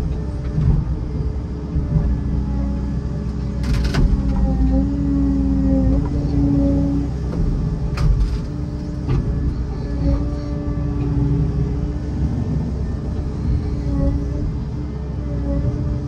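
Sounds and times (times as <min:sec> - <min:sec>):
diesel engine under load: 0:00.0 - 0:16.0
hydraulic whine: 0:03.3 - 0:16.0.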